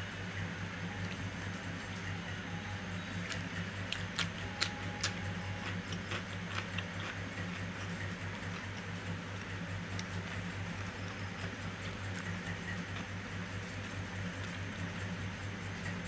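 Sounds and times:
steady low hum: 0.0s - 16.0s
sharp eating clicks: 3.1s - 15.2s.

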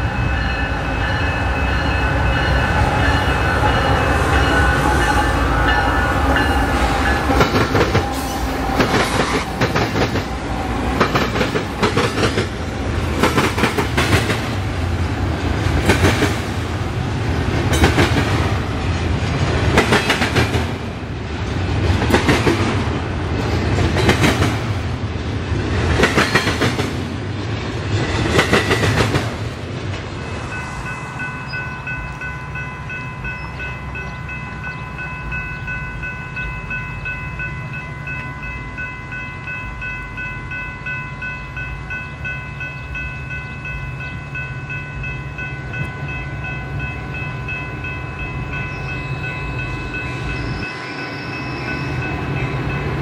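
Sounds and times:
crossing warning bell ringing: 0.0s - 14.6s, 30.2s - 53.0s
freight train wheels clattering: 1.0s - 30.5s.

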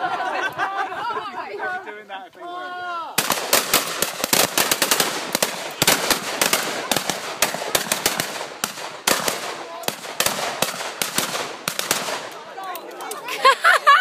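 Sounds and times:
shotguns firing: 3.2s - 12.5s.

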